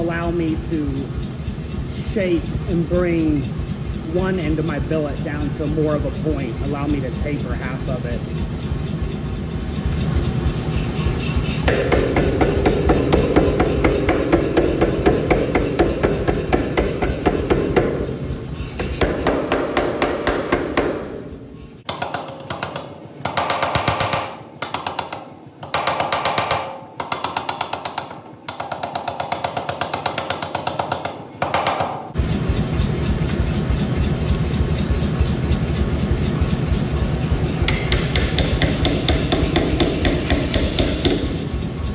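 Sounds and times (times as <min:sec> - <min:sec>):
power hammer striking hot steel: 0:10.2 - 0:34.2, 0:34.8 - 0:41.9.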